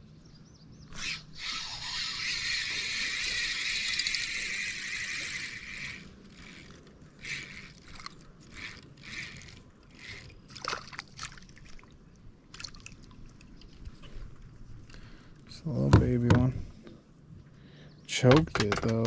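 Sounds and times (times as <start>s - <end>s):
water sloshing and splashing: 2.8s - 15.0s.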